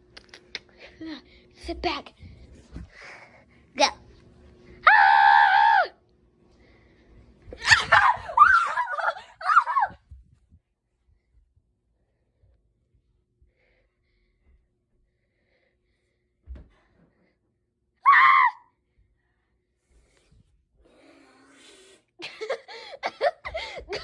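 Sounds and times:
child shrieking: 7.6s - 10.0s.

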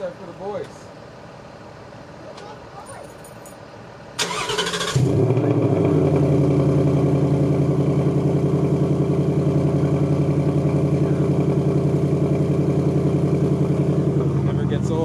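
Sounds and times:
car engine idling: 4.2s - 15.0s.

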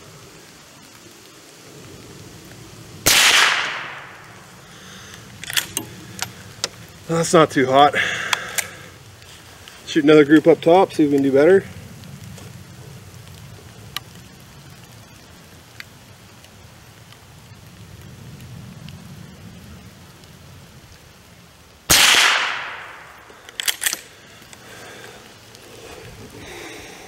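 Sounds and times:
rifle shot: 3.0s - 4.2s, 21.9s - 24.0s
metallic clicks of rifle pump slide: 5.4s - 6.7s, 23.5s - 24.1s.

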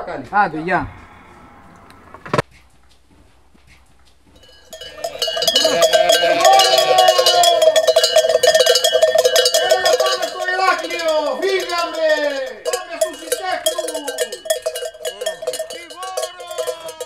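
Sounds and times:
sheep bleating: 0.5s - 2.3s, 5.0s - 7.7s
sheep bells clanging: 4.4s - 17.0s.

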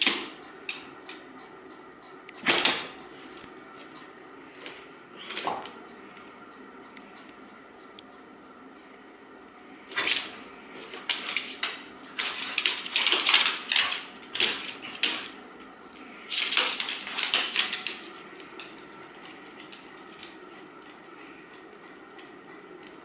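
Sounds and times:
dog claws clicking on hardwood floor: 10.9s - 15.4s, 16.3s - 22.9s.

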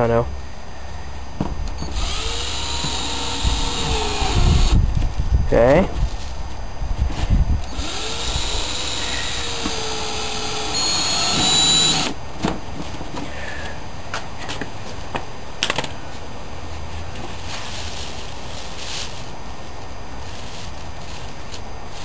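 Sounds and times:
cordless drill motor whine: 1.6s - 5.0s, 7.6s - 12.2s.

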